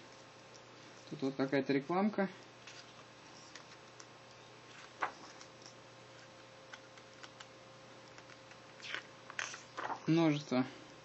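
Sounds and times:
page turning rustle: 2.6s - 4.1s, 4.7s - 7.5s, 8.2s - 10.2s.

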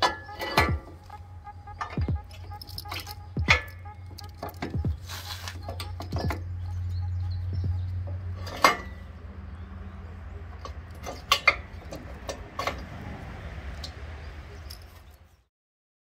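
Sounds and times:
steady low hum: 0.7s - 12.5s
metal clanks of steel pin: 8.4s - 9.0s.

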